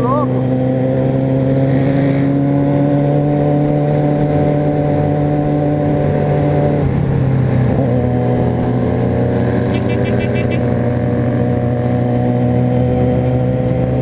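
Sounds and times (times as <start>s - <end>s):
motorcycle engine cruising: 0.0s - 14.0s.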